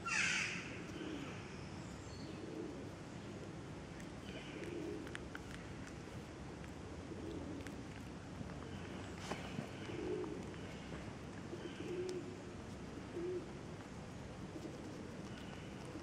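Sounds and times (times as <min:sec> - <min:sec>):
pigeons cooing: 0:00.0 - 0:01.5, 0:02.2 - 0:03.4, 0:04.2 - 0:05.6, 0:06.9 - 0:08.0, 0:08.6 - 0:13.6, 0:14.5 - 0:16.0
faint outdoor hum: 0:00.0 - 0:16.0.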